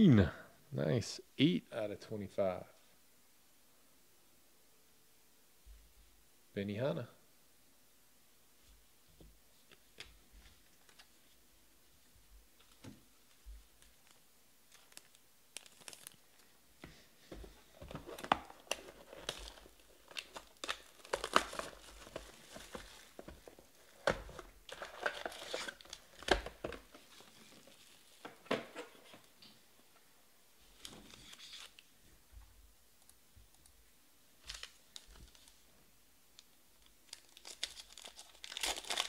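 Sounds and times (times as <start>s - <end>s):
plastic wrap crinkling and tearing: 13.7s - 16.6s, 17.8s - 28.3s, 34.4s - 35.6s, 36.4s - 39.0s.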